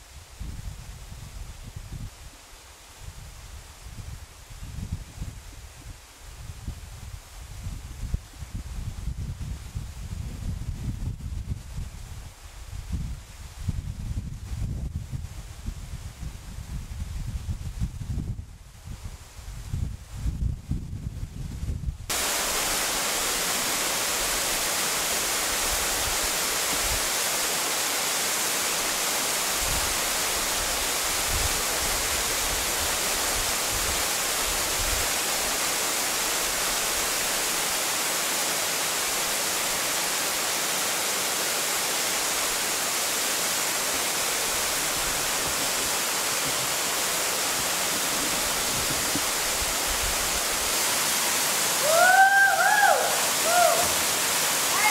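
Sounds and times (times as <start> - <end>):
waterfall rushing: 22.1 - 54.9.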